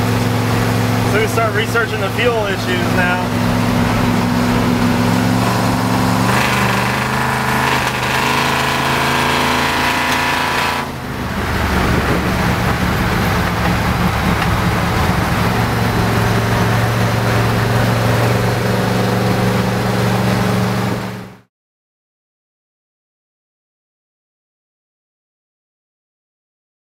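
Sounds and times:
road and wind noise: 0:00.0 - 0:21.4
truck engine droning: 0:00.0 - 0:21.5.

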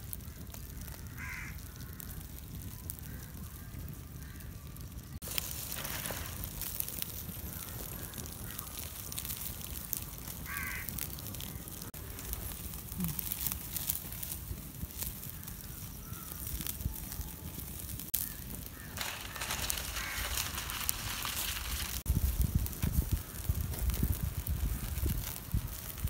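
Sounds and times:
wood fire crackling: 0:00.0 - 0:26.0
crow cawing: 0:00.4 - 0:02.3, 0:07.5 - 0:08.8, 0:10.4 - 0:11.0, 0:15.2 - 0:16.5, 0:18.2 - 0:21.8.

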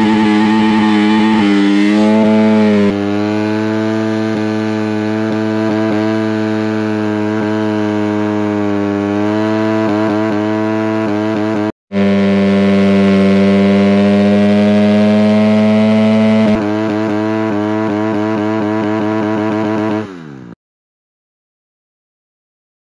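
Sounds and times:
tyre spinning on asphalt: 0:00.0 - 0:10.7
motorcycle engine revving high: 0:00.0 - 0:20.6.

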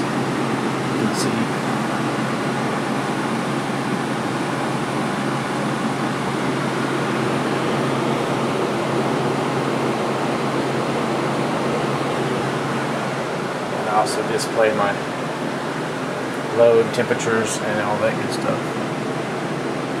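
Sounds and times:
computer cooling fans whirring: 0:00.0 - 0:20.0.

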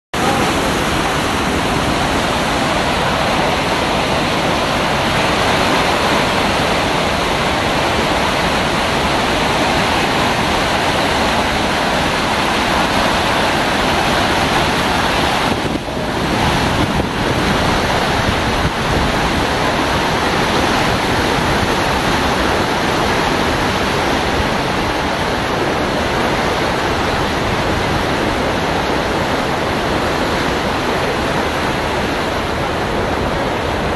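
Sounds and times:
whitewater rapids rushing: 0:00.2 - 0:33.9.

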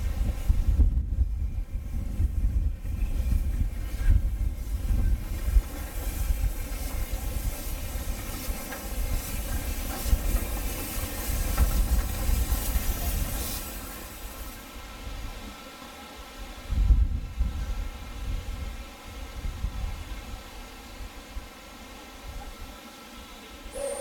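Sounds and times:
gusty low rumble: 0:00.0 - 0:06.6
steam locomotive hissing: 0:00.0 - 0:24.0.

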